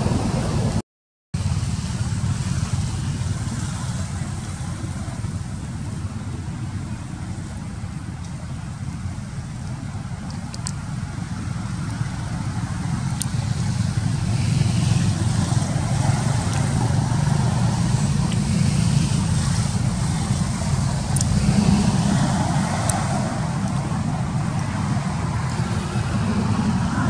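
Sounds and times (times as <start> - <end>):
traffic rumble: 0.0 - 0.8, 1.4 - 27.0
faint sharp clicks: 10.2 - 10.8.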